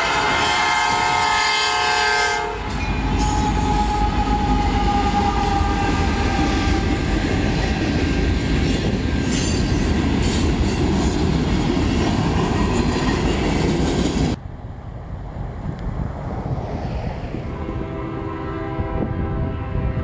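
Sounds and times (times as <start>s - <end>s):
locomotive horn: 0.0s - 7.1s, 17.5s - 20.0s.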